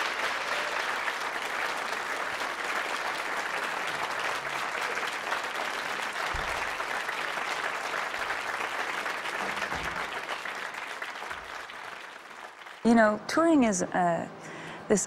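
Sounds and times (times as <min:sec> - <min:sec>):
audience applauding: 0:00.0 - 0:12.9
short low thump: 0:06.3 - 0:06.8.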